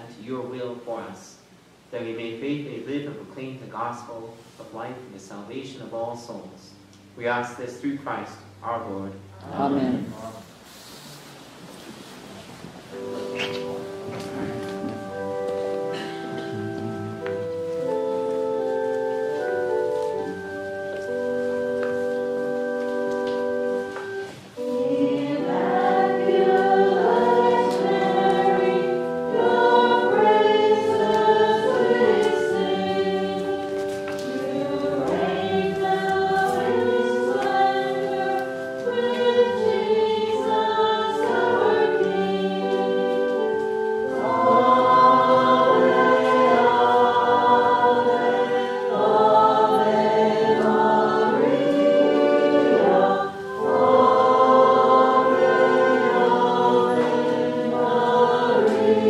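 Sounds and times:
held chords: 5.7s - 10.6s, 12.8s - 59.0s
choir singing a hymn: 9.5s - 10.4s, 12.9s - 59.0s.

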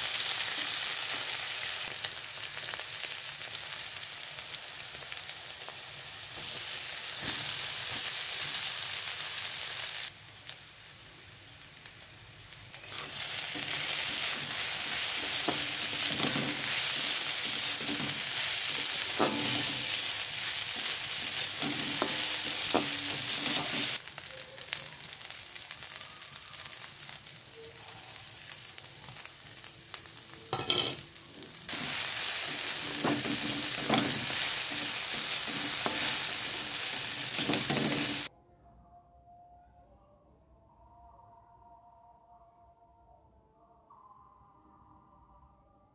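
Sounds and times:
food sizzling in hot oil: 0.0s - 38.3s
spatula scraping a pan: 12.8s - 24.0s, 31.7s - 38.3s.

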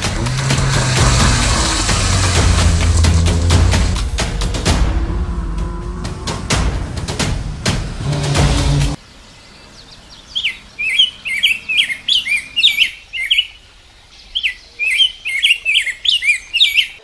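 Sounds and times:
loud soundtrack: 0.0s - 9.0s
songbird chirping: 0.0s - 17.0s.

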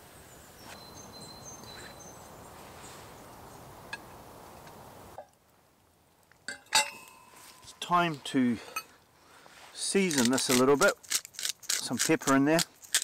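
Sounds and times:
outdoor background noise: 0.0s - 13.0s
metal lid clinks: 6.5s - 7.3s.

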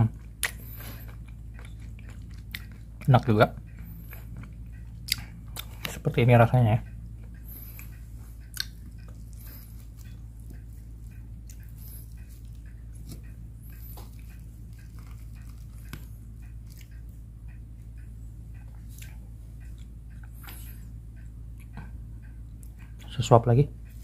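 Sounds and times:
soft chewing: 0.0s - 23.1s
steady low hum: 0.0s - 24.0s.

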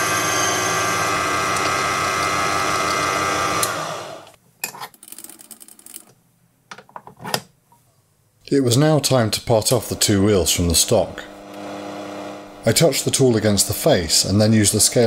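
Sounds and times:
lathe motor whining: 0.0s - 4.4s, 9.8s - 12.7s.

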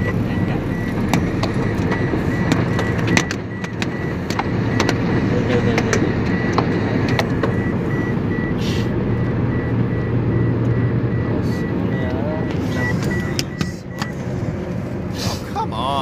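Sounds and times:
locusts ticking against car: 0.0s - 14.8s
car road and engine rumble: 0.0s - 16.0s.

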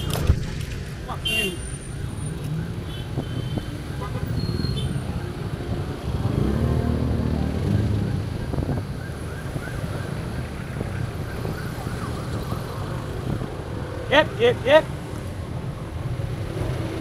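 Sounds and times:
road traffic engines: 0.0s - 17.0s
vehicle engine passing: 6.0s - 8.8s.

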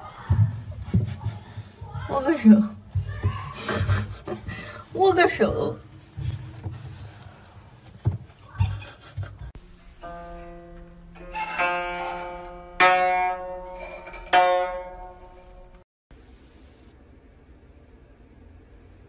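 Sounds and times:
soft thumps: 6.0s - 9.5s
plucked zither strings: 10.0s - 15.8s.

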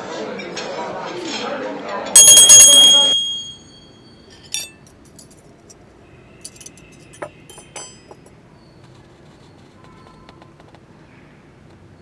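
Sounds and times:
small hand bell ringing: 2.2s - 4.7s
light metallic clinks: 2.2s - 5.4s, 6.4s - 8.4s.

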